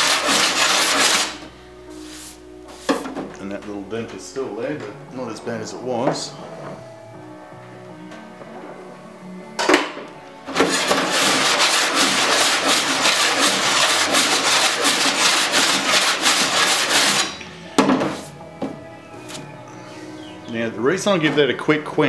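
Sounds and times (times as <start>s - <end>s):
file rasping on steel: 0.0s - 1.4s, 10.5s - 17.4s.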